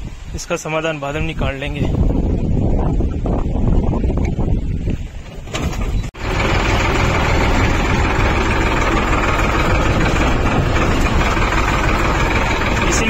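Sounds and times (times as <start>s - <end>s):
tractor engine running: 5.1s - 13.0s.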